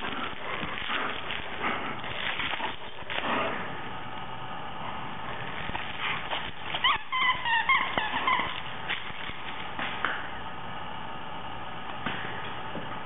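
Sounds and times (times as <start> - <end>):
short high squeaks: 6.7 - 8.6.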